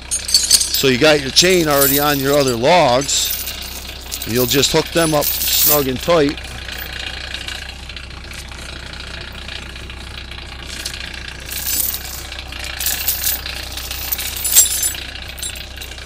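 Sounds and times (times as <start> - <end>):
steel chain rattling: 0.0 - 7.0, 10.7 - 16.0
low hum: 0.0 - 16.0.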